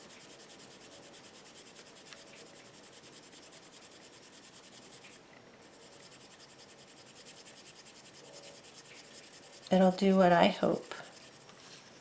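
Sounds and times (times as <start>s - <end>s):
dry brush scratching on surface: 0.0s - 12.0s.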